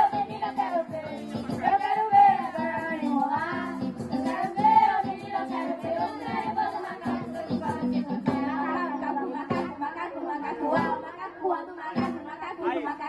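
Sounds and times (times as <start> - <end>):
drums keeping a steady beat: 0.0 - 8.7, 9.5 - 9.8, 10.7 - 11.0
live band playing: 0.0 - 9.9, 10.7 - 11.1
children singing: 0.0 - 12.9.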